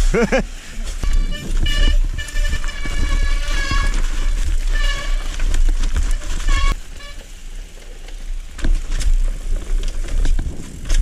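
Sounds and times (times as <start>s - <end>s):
bike rattles and knocks: 0.0s - 11.0s
bike tyres rumbling on dirt: 0.0s - 11.0s
wind on microphone: 1.0s - 6.8s, 9.4s - 11.0s.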